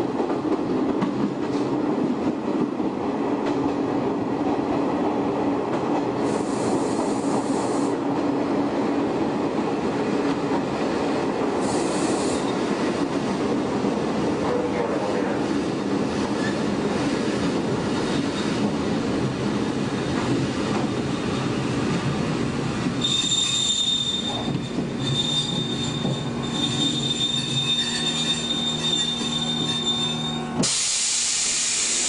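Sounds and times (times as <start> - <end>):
train wheels rumbling: 0.0 - 32.0
wheels squealing on rail: 11.6 - 12.7, 16.4 - 16.7, 23.0 - 32.0.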